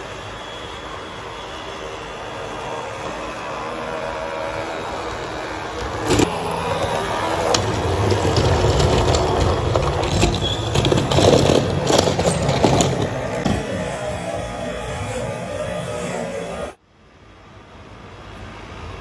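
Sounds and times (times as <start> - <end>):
model locomotive motor hum: 0.0 - 16.8
wheels clicking over rails: 2.0 - 16.8.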